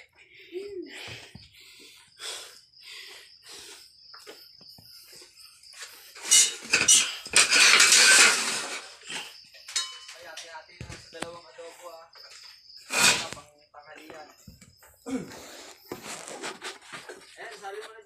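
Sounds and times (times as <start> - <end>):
light clinks and knocks: 9.0 - 11.3
loud hissing rustling burst: 12.9 - 13.4.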